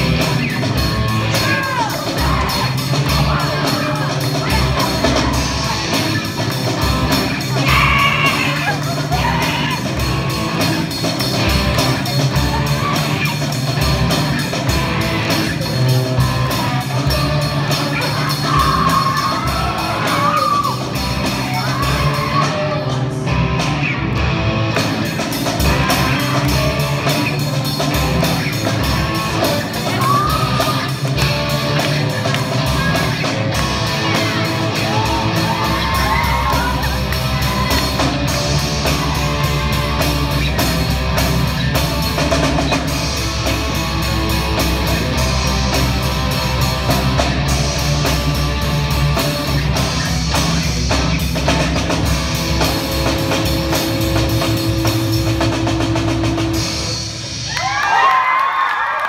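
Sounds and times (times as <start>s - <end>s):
rock band playing live: 0.0s - 59.0s.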